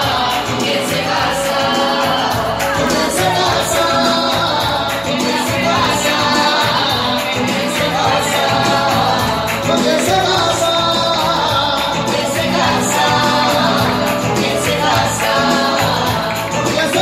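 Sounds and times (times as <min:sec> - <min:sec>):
person singing live: 0:00.0 - 0:17.0
pop backing music with bass: 0:00.0 - 0:17.0.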